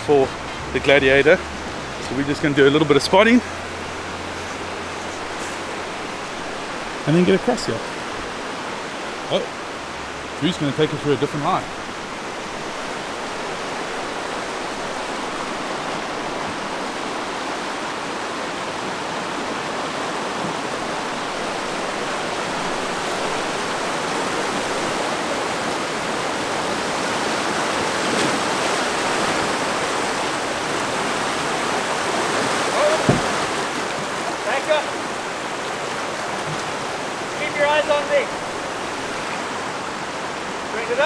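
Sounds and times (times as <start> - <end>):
creek water rushing over rocks: 0.0 - 41.0
water churning around tyres: 0.0 - 41.0
short thump: 33.0 - 33.5.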